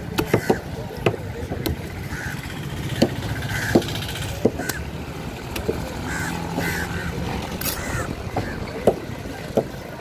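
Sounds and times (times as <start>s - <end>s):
knife chopping fish on wood: 0.0s - 1.9s
engine running: 0.0s - 10.0s.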